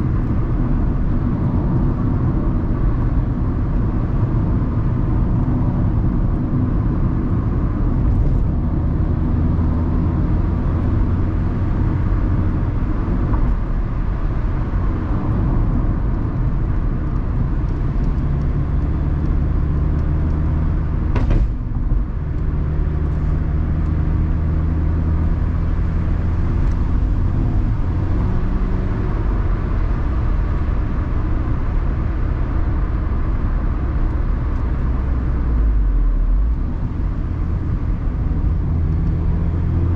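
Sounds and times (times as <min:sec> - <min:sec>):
car engine running: 0:00.0 - 0:39.9
short knock: 0:21.1 - 0:21.6.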